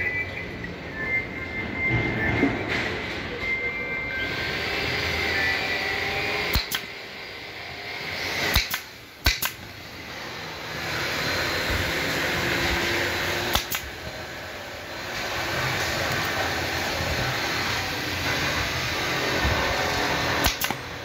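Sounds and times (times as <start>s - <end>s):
steady background noise: 0.0s - 21.0s
staple gun firing: 6.5s - 6.9s, 8.4s - 9.7s, 13.4s - 14.0s, 20.4s - 20.9s.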